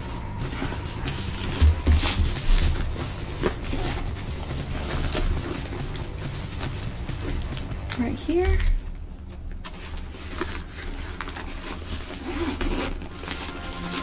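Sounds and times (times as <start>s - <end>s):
plastic rustling: 0.0s - 14.0s
zipper pulled open: 10.2s - 14.0s.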